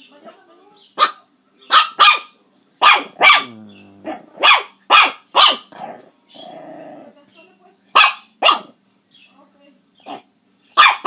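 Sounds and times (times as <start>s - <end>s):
puppy yapping: 1.0s - 6.6s, 8.0s - 8.8s, 10.0s - 11.0s.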